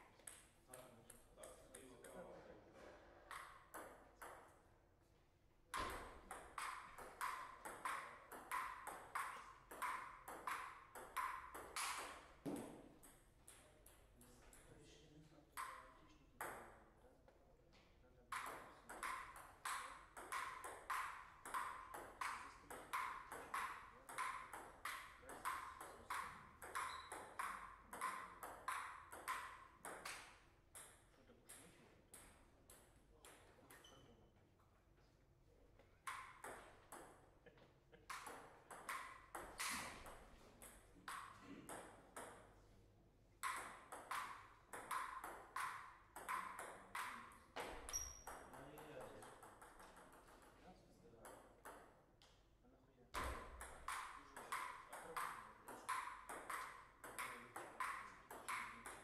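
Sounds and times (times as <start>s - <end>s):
table tennis ball hits: 3.2s - 4.5s, 5.7s - 14.7s, 15.5s - 16.9s, 18.3s - 34.0s, 36.0s - 37.3s, 38.0s - 42.6s, 43.4s - 50.6s, 51.2s - 52.0s, 53.2s - 59.0s.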